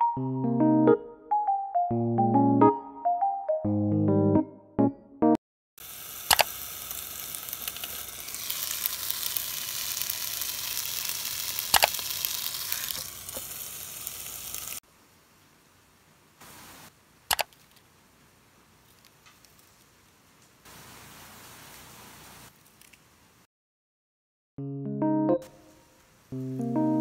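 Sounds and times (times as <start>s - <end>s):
chicken sizzling on a grill: 5.8s - 14.8s
sharp clicks: 6.3s - 6.6s, 11.7s - 12.3s, 17.3s - 17.8s.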